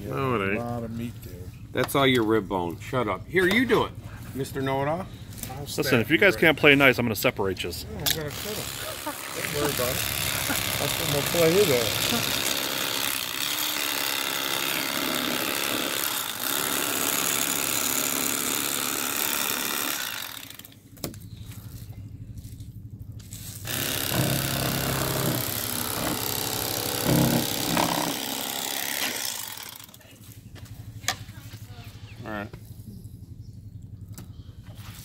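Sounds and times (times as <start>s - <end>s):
electric knife sawing through fish: 8.3s - 20.7s, 23.6s - 30.0s.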